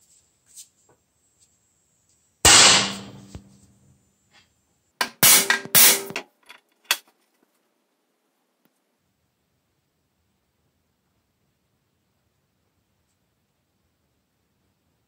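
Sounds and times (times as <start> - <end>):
hammer striking steel punch: 2.5 - 3.5, 5.0 - 6.2
loud metallic knocks: 2.5 - 3.5, 5.0 - 6.2.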